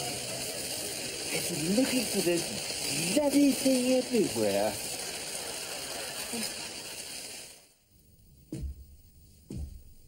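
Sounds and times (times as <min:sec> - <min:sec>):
steady rain hiss: 0:00.0 - 0:08.2
soft thump: 0:08.5 - 0:08.9, 0:09.5 - 0:09.9.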